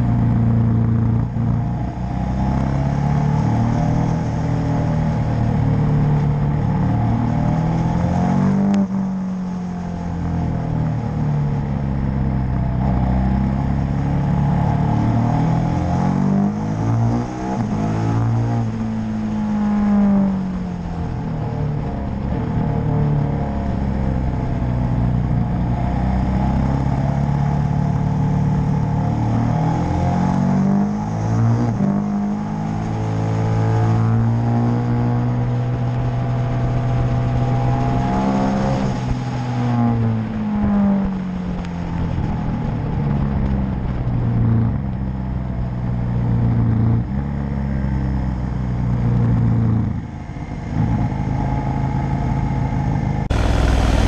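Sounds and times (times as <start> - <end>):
motorcycle engine at speed: 0.0 - 54.0
wind rush: 53.2 - 54.0.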